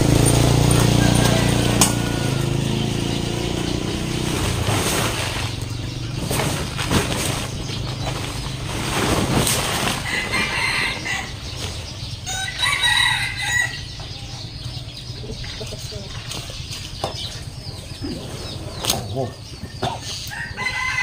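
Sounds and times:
rooster crowing: 0.0s - 3.5s, 10.0s - 11.6s, 12.2s - 14.6s, 20.3s - 21.0s
plastic tarp rustling: 4.1s - 11.9s.

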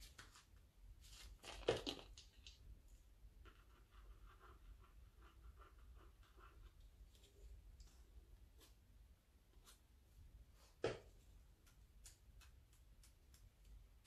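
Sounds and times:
scratching on paper: 3.4s - 7.5s.

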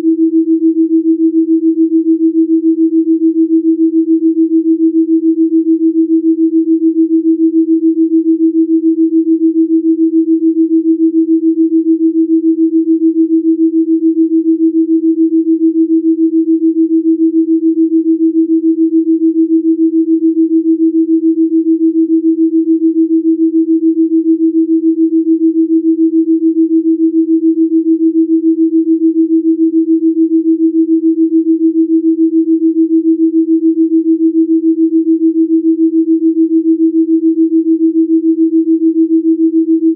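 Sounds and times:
pulsing sine tone: 0.0s - 39.9s.

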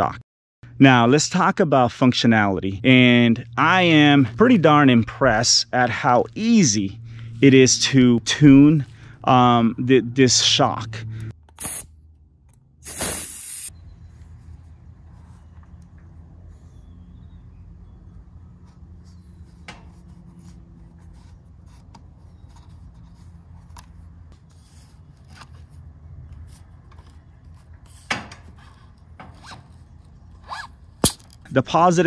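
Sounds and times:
low steady hum: 0.7s - 11.3s
parts rubbing and scraping: 11.6s - 11.8s, 12.8s - 13.7s, 18.6s - 31.5s.

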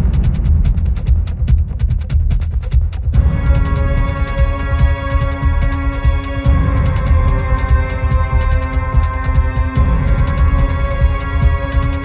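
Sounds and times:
pulsing bass: 0.0s - 12.0s
steady drum beat: 0.0s - 12.0s
dark instrumental synth music: 1.8s - 12.0s.

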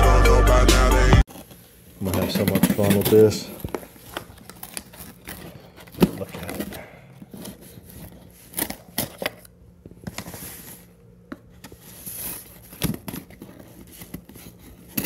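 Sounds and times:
cardboard scraping: 1.3s - 9.5s, 11.5s - 15.0s.

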